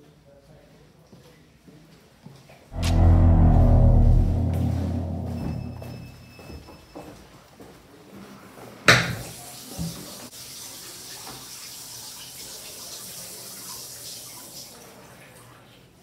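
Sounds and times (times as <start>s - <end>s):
sharp bang: 2.8s - 6.4s.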